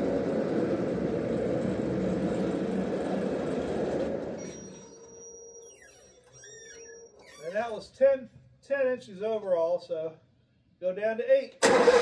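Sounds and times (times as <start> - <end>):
sawmill engine running under load: 0.0 - 5.0.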